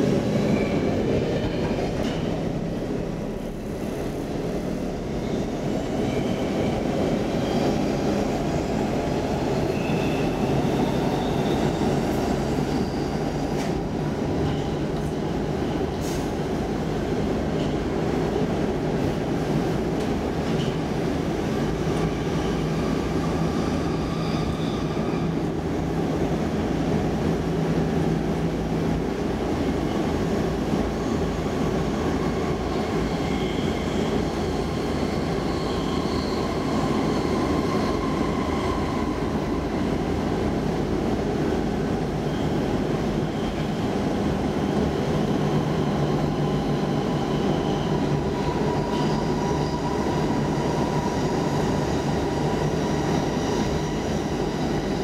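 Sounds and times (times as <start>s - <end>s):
subway wheels rumbling on rails: 0.0s - 55.0s
faint wheel squeal: 23.8s - 25.4s.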